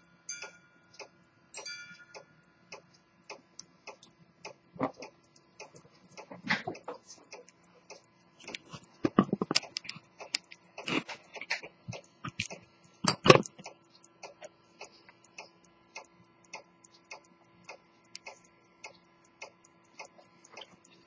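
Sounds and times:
pocket watch ticking: 0:00.2 - 0:21.0
watch being handled: 0:08.4 - 0:13.6.

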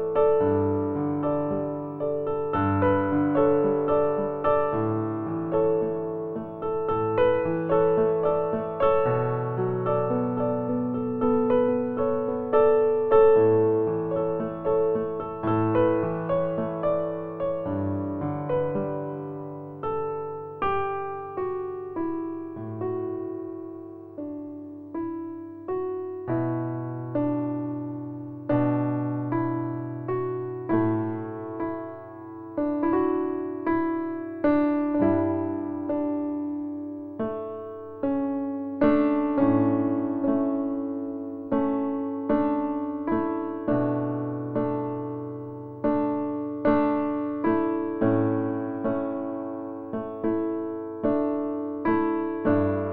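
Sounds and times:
slow gentle solo piano: 0:00.0 - 0:52.9.

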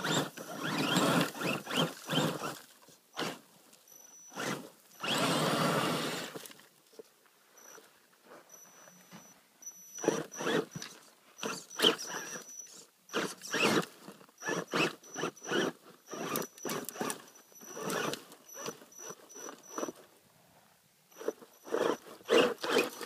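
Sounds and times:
electric motor whirring in bursts: 0:00.0 - 0:02.6, 0:04.3 - 0:06.4, 0:09.9 - 0:10.8, 0:13.1 - 0:19.9, 0:21.1 - 0:23.0.

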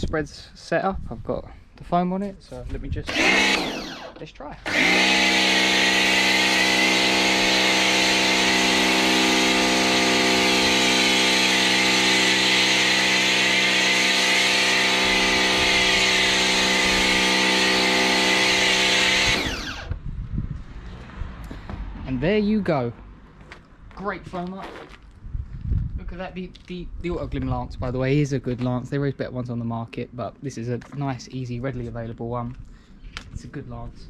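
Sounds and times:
pressure washer motor humming: 0:03.1 - 0:19.9.

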